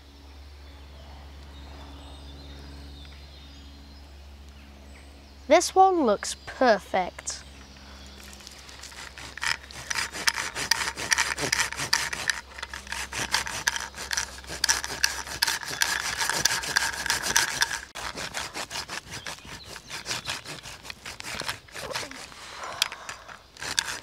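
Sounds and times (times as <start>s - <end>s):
hand saw cutting wood: 8.2s - 24.0s.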